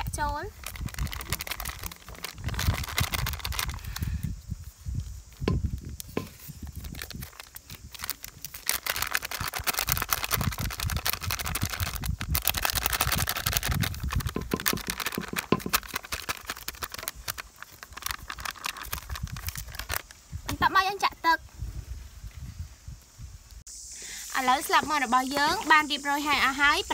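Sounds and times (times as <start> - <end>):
foil packet crinkling: 0.5 - 4.3, 6.0 - 20.2.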